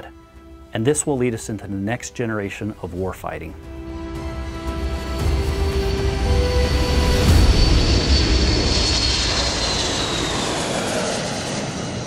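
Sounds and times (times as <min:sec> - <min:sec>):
high jet engine whine: 0:00.0 - 0:12.0
jet aircraft taking off: 0:03.6 - 0:12.0.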